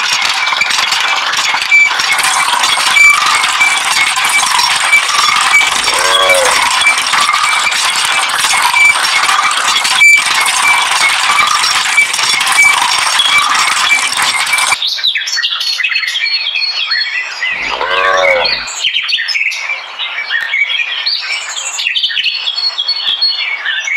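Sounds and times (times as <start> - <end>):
birds chirping: 5.0 - 7.6, 17.2 - 23.0
cow mooing: 5.7 - 6.8, 17.6 - 18.8.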